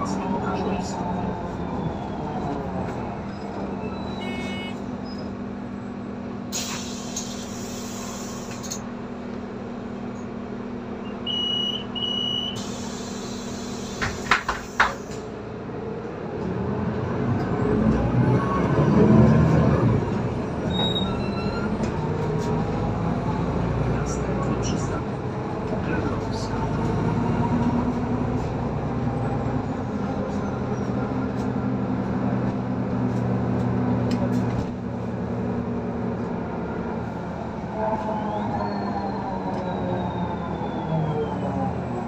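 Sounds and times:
bus engine running: 0.0s - 42.0s
short electronic beeps: 11.2s - 12.6s.

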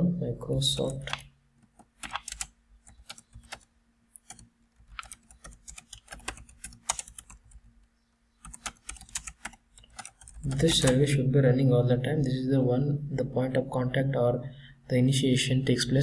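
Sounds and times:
typing on computer keyboard: 0.8s - 7.8s, 8.4s - 11.0s.

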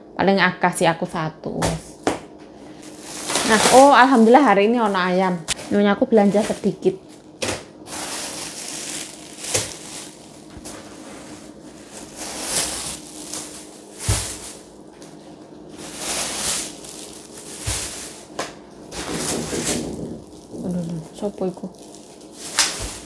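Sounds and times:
shopping bags rustling: 2.6s - 23.0s.

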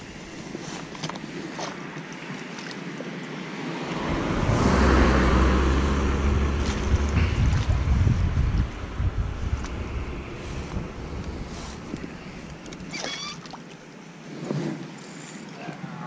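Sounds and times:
wind rumbling on microphone: 2.9s - 13.3s.

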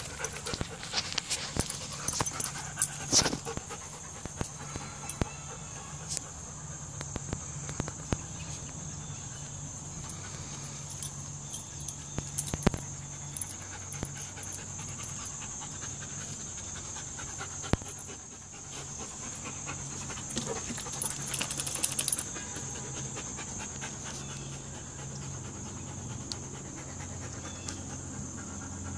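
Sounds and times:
dogs scuffling on grass: 0.0s - 3.7s
dog panting: 0.0s - 5.2s, 12.3s - 28.9s.

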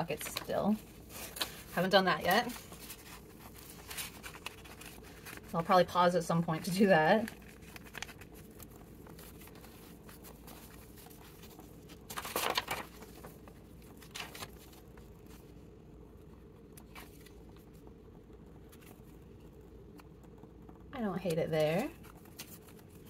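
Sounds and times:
paper rustling: 0.0s - 6.0s, 6.6s - 15.5s, 16.8s - 17.6s, 21.6s - 23.0s
low steady hum: 0.0s - 23.0s.

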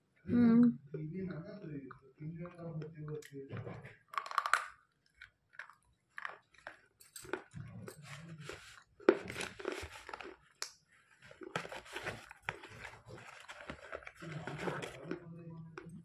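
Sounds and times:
crunchy chewing: 4.1s - 16.0s.

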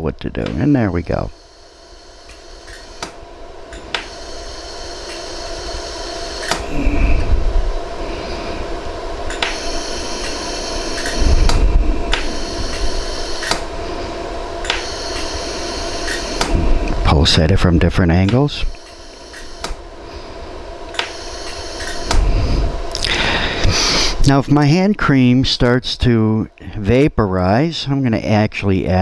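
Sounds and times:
machine hum: 0.0s - 29.0s
laser welder clicks: 1.4s - 6.7s, 9.3s - 13.7s, 14.6s - 16.5s, 18.2s - 19.8s, 20.9s - 22.2s
low rumble: 6.6s - 14.7s, 15.4s - 18.8s.

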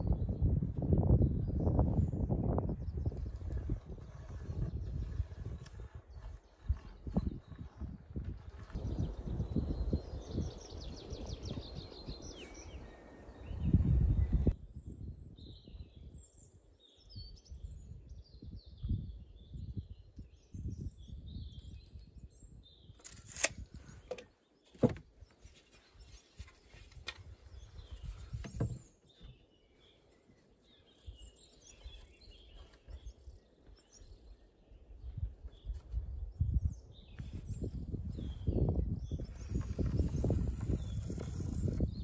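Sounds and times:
songbirds chirping and singing: 0.0s - 42.0s.

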